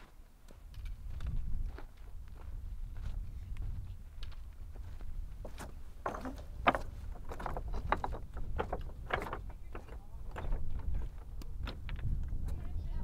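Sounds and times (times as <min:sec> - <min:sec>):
boots crunching on rocks: 0:00.6 - 0:09.0
low wind rumble: 0:00.7 - 0:13.0.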